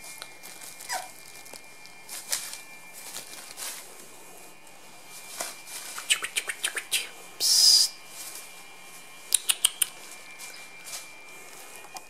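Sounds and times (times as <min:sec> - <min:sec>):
newspaper rustling: 0:00.0 - 0:06.1, 0:09.9 - 0:11.9
puppies squeaking and yipping: 0:00.8 - 0:01.2, 0:09.4 - 0:10.6
short hissing burst: 0:05.9 - 0:08.0.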